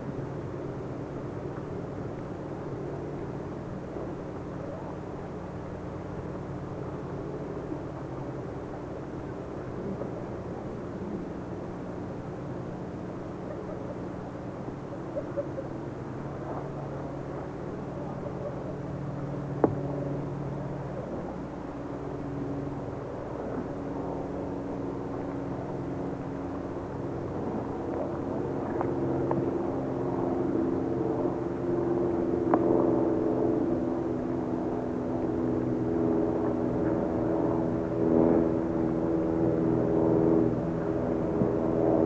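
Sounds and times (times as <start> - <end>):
low mechanical drone: 0.0 - 42.0.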